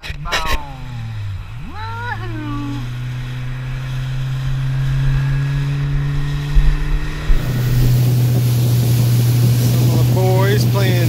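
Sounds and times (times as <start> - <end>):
outboard motor running: 0.0 - 11.0
rush of wind and water: 5.3 - 11.0
hull thumps: 6.1 - 9.7.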